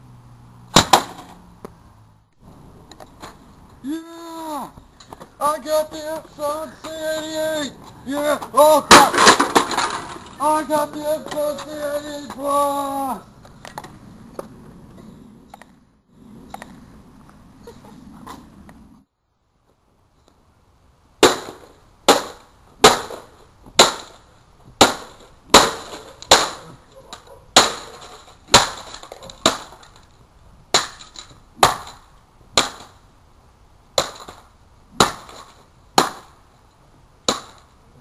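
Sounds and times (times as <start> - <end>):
plastic and metal parts clattering: 8.9 - 10.4
stick smashing printer: 8.9 - 10.4.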